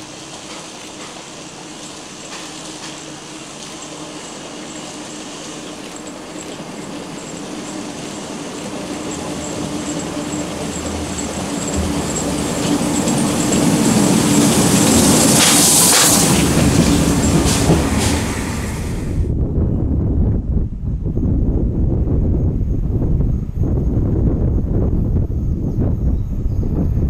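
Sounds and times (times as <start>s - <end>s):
steam locomotive passing: 0.0s - 19.3s
low rumble: 11.7s - 15.2s, 16.5s - 27.0s.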